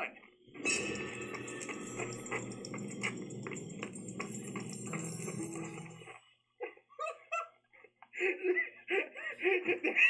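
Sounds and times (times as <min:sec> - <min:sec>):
running footsteps: 0:01.1 - 0:06.2.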